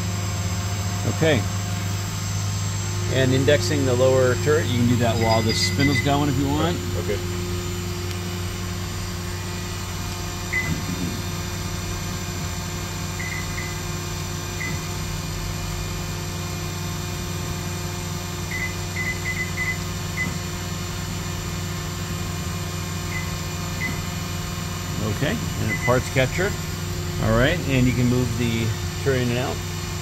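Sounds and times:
machine tool humming: 0.0 - 30.0
high chirps: 5.0 - 6.2.

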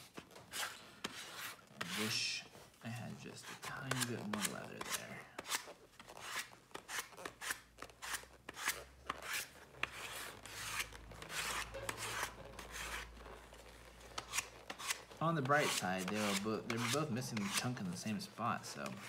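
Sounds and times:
sanding block rubbing leather: 3.4 - 17.8.

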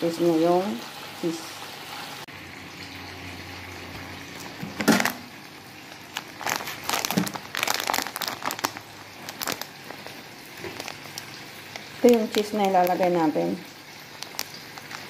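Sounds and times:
plastic bag crinkling: 4.3 - 15.0.

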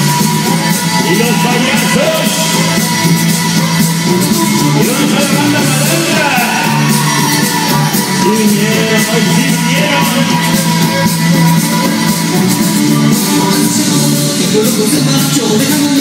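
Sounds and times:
loud dance music with singing: 0.0 - 16.0.

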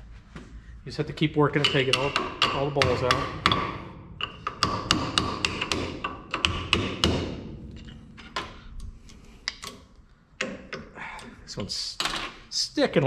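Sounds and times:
hammer tapping on metal punch: 1.5 - 8.6.

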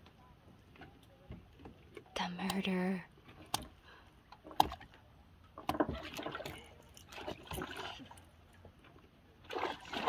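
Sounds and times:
water splashing: 4.4 - 10.0.

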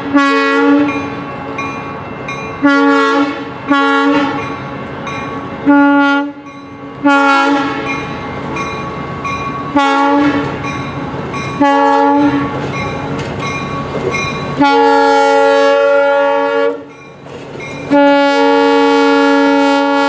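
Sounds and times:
locomotive air horn blasts: 0.0 - 1.0, 2.6 - 4.4, 5.6 - 6.4, 7.0 - 7.9, 9.7 - 10.6, 11.6 - 12.6, 14.6 - 16.9, 17.9 - 20.0
train rumbling: 0.0 - 20.0.

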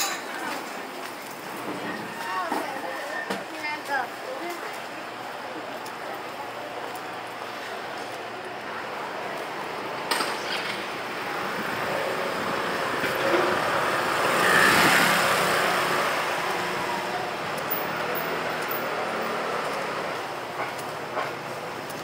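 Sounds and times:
street traffic noise: 0.0 - 22.0
motor vehicle passing close: 11.6 - 17.0.

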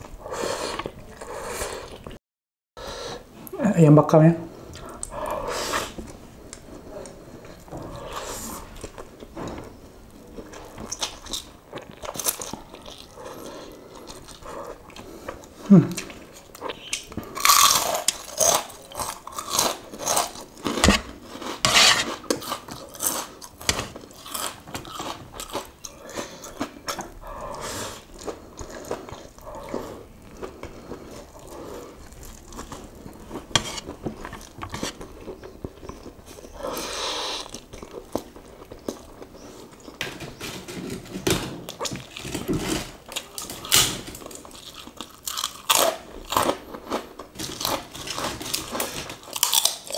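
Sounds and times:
cracker crunching: 16.3 - 27.1, 41.7 - 49.9.

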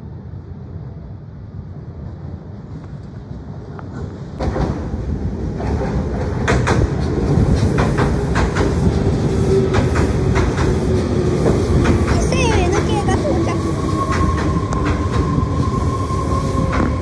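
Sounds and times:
train rumble: 0.0 - 17.0
train whine: 0.0 - 17.0
wheels clacking over rail joints: 5.6 - 13.3.

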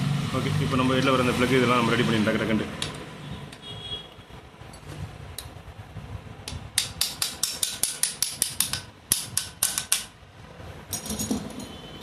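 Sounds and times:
pliers tapping metal: 6.4 - 10.1.

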